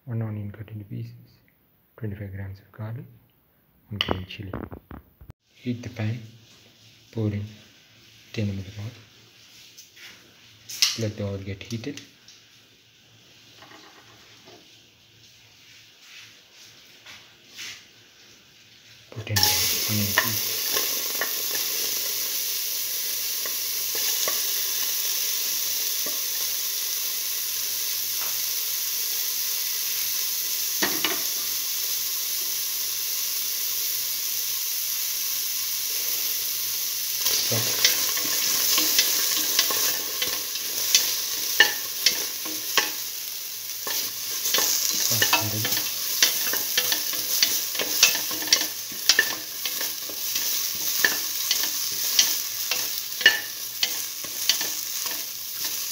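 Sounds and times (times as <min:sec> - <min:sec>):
onion sizzling in oil: 0:04.5 - 0:55.9
stirring clicks and scrapes in pan: 0:19.2 - 0:22.4, 0:23.0 - 0:26.5, 0:37.2 - 0:55.9.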